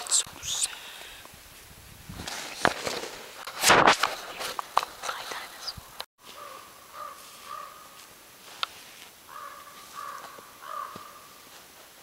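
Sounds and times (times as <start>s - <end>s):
crow cawing: 6.3s - 8.0s, 9.3s - 11.3s.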